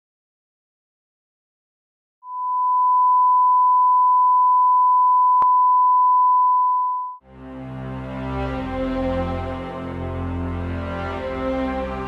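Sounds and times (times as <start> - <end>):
music: 7.2 - 12.0.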